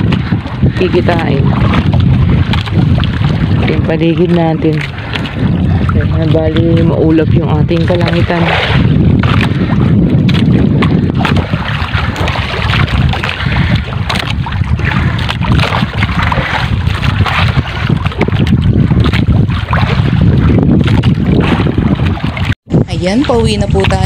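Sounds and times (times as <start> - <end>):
water washing: 0.0 - 24.0
wind buffeting microphone: 0.0 - 24.0.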